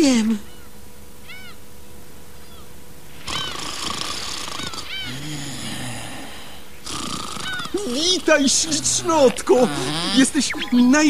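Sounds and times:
cartoon bird chirping: 0:01.3 - 0:01.6, 0:03.2 - 0:05.2, 0:07.3 - 0:11.0
cartoon snore: 0:03.2 - 0:10.4.

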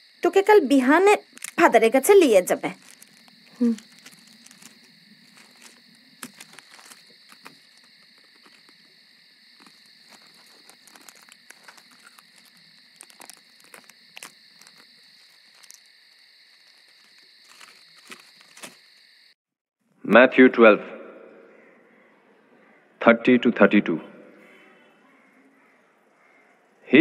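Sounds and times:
crickets chirring: 0:00.0 - 0:19.4, 0:23.7 - 0:27.0.

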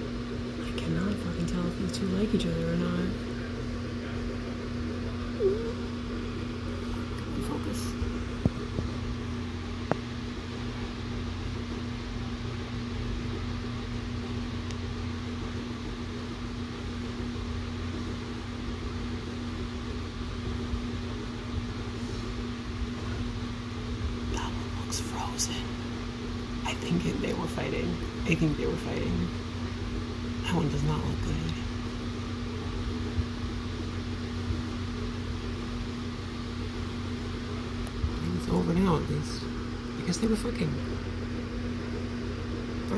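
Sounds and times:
electric fan whirring: 0:00.0 - 0:42.9.

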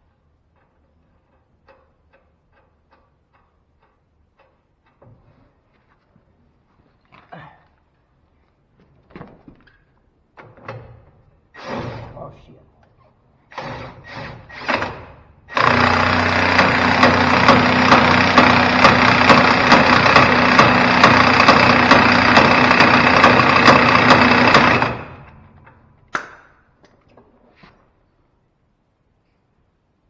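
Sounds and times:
impact wrench hammering: 0:13.6 - 0:26.6.

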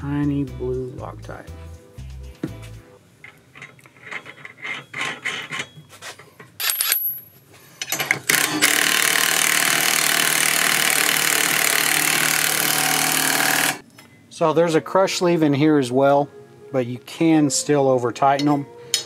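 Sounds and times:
impact driver running: 0:08.3 - 0:13.8.

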